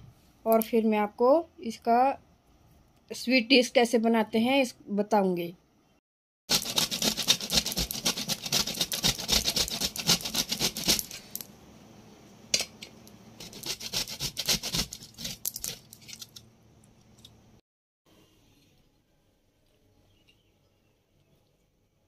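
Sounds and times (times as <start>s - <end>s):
food grated on metal grater: 6.5s - 11.3s, 13.4s - 16.4s.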